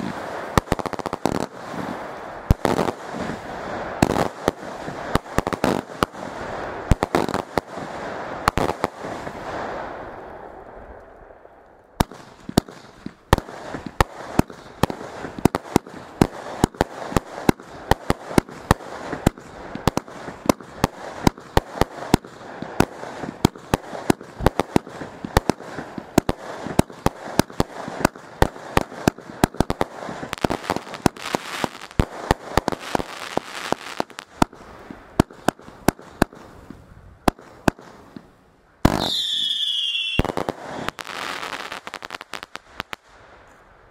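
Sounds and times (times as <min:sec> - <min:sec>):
firework shots and bursts: 0:00.0 - 0:10.9, 0:12.0 - 0:43.4
firework crackling: 0:00.0 - 0:11.2, 0:12.0 - 0:43.5
gliding firework whistles: 0:38.9 - 0:41.7.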